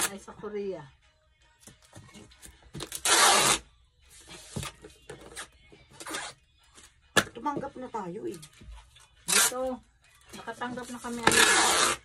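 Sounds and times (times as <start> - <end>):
packing tape ripping off roll: 2.8 - 3.6, 5.3 - 6.4, 9.3 - 9.6, 11.2 - 12.0
tape rubbed onto cardboard: 3.0 - 4.8, 11.2 - 12.0.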